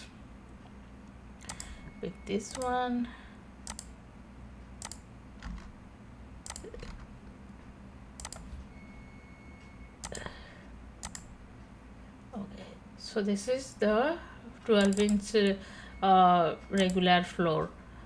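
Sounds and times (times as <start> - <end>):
faint low hum: 0.0 - 18.0
computer mouse clicking: 1.4 - 1.8, 2.5 - 2.8, 3.6 - 4.0, 4.8 - 5.7, 6.4 - 7.1, 8.2 - 8.5, 10.0 - 10.3, 11.0 - 11.3, 14.7 - 15.2, 16.8 - 17.0.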